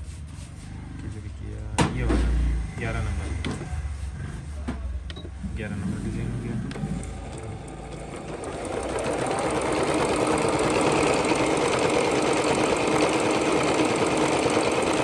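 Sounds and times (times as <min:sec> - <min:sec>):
electronic sewing machine sewing: 0:06.8 - 0:15.0.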